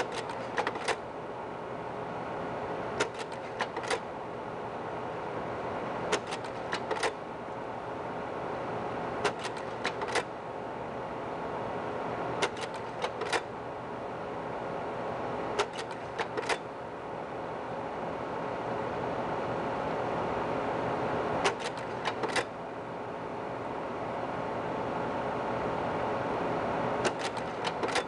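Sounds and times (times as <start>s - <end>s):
slide projector clicks: 0.0s - 1.0s, 3.0s - 4.1s, 6.1s - 7.2s, 9.2s - 10.3s, 12.4s - 13.5s, 15.6s - 16.7s, 21.4s - 22.5s, 27.0s - 28.0s
projector hum: 0.0s - 28.0s.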